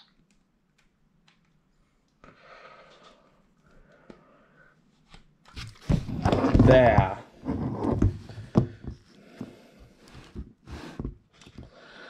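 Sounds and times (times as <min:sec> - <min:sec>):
faint breathing: 0:02.2 - 0:04.8, 0:08.3 - 0:12.0.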